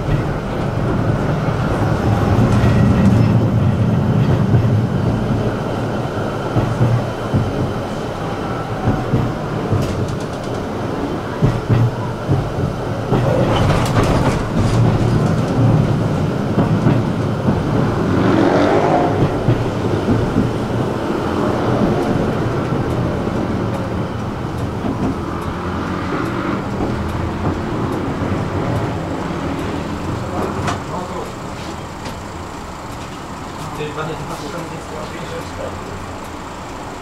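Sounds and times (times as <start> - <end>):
tram wheels rumbling on rails: 0.0 - 37.0.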